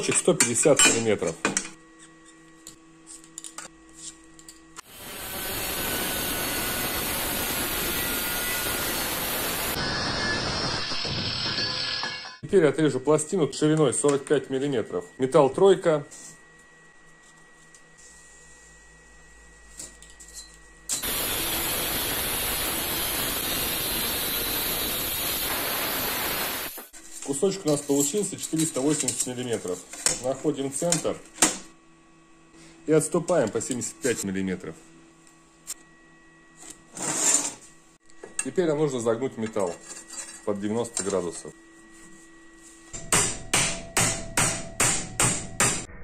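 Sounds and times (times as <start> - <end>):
angle grinder cutting steel: 4.8 - 12.4, 21.0 - 26.9.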